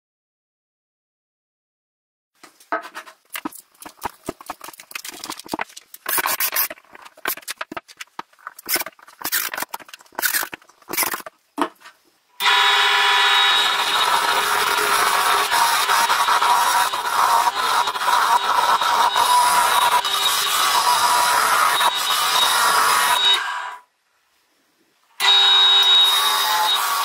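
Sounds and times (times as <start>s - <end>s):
clicks and scrapes of parts handled: 2.4s - 12.0s
wood lathe cutting: 12.4s - 23.8s, 25.2s - 27.0s.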